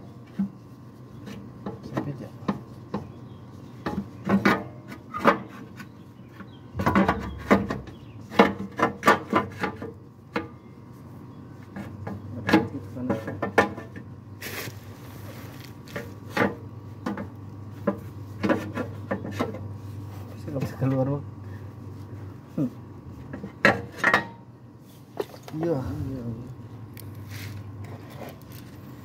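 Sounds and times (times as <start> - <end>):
metal oil pan knocking and scraping: 6.8 - 10.0.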